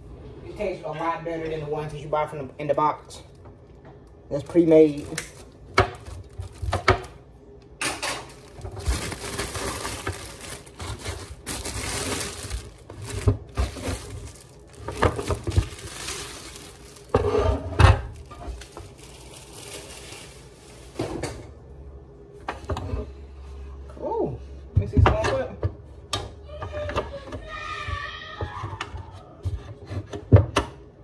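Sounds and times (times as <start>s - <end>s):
plastic packaging crinkling: 4.3s - 7.2s, 7.9s - 21.0s.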